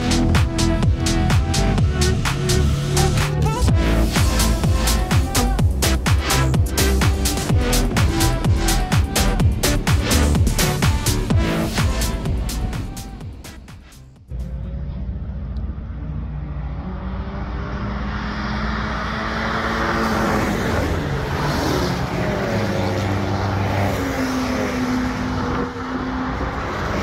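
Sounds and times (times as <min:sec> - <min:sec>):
race car engines: 0:00.0 - 0:27.0
tyre and road noise: 0:00.0 - 0:27.0.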